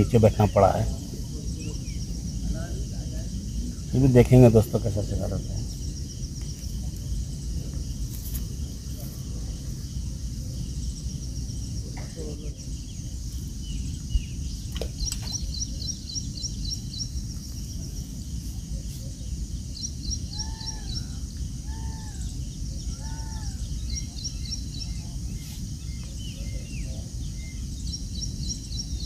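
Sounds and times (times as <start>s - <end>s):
arched lower bird calls: 12.0s - 17.3s, 19.7s - 29.0s.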